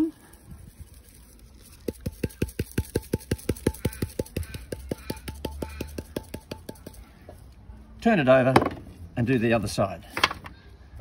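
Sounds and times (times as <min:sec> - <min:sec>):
spice shaker knocks: 0:01.7 - 0:07.0.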